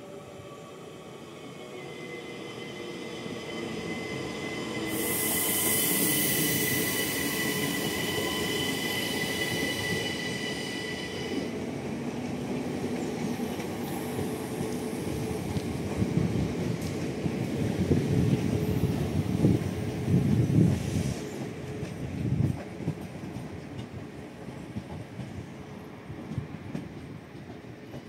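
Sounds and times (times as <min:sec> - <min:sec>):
train high whine: 0:00.0 - 0:21.9
train rumbling on rails: 0:00.0 - 0:28.0
hiss: 0:04.8 - 0:11.4, 0:20.6 - 0:21.5.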